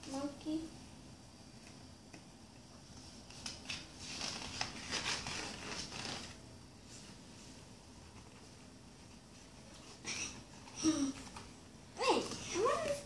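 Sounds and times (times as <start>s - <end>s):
paper pages rustling: 3.0s - 9.9s
page crackling: 3.3s - 6.4s.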